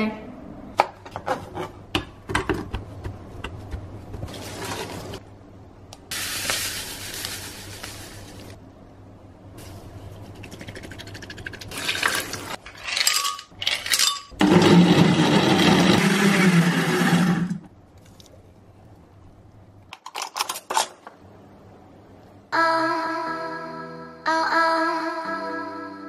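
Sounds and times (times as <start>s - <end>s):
blender running: 14.4s - 17.6s.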